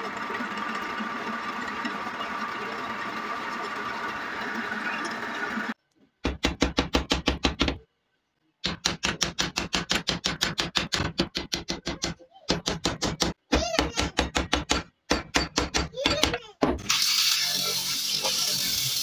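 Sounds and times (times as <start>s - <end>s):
small hammer tapping metal rivets: 8.6s - 16.4s.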